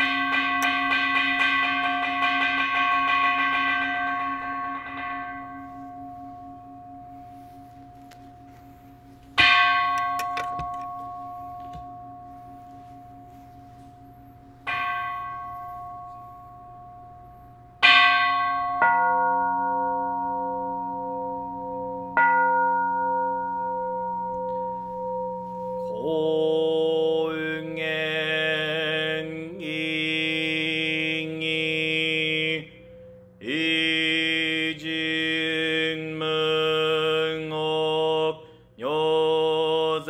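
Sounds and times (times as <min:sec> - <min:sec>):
bowl bell ringing: 0:00.0 - 0:35.3
slow chanting: 0:24.4 - 0:40.0.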